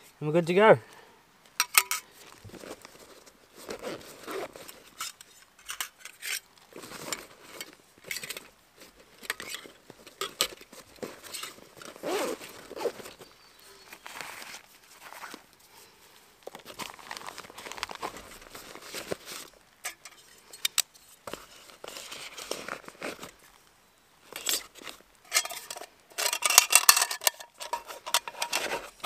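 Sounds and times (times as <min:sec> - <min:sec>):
small metal items clinking: 0:01.6 - 0:02.8, 0:24.2 - 0:29.0
fabric pouch rustling: 0:02.1 - 0:05.2, 0:06.6 - 0:19.7, 0:21.2 - 0:23.6, 0:27.6 - 0:29.0.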